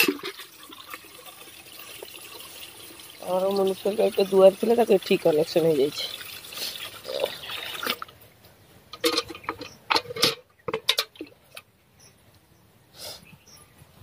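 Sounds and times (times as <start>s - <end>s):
tap water running into steel pail: 0.0s - 8.1s.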